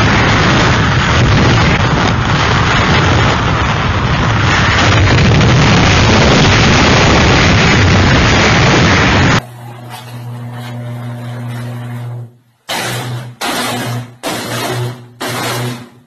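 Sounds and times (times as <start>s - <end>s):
hurricane wind buffeting microphone: 0.0s - 9.4s.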